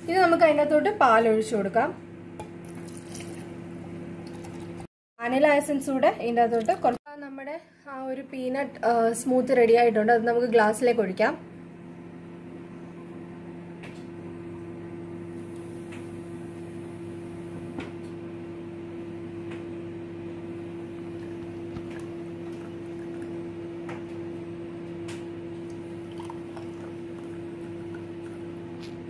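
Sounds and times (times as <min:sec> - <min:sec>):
steady low hum: 0:00.0 - 0:29.0
thick liquid pouring: 0:02.6 - 0:03.5, 0:04.2 - 0:04.8, 0:25.8 - 0:28.4.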